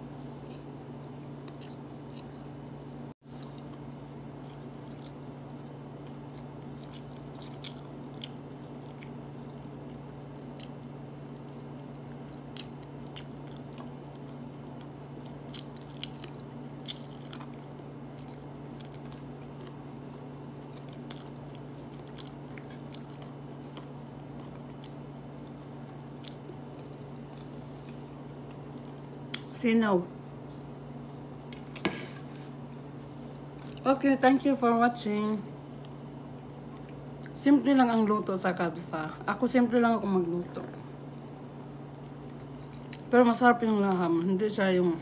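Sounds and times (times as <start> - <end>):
person chewing food: 1.4 - 2.5, 3.3 - 29.5, 30.4 - 33.8, 42.2 - 43.1.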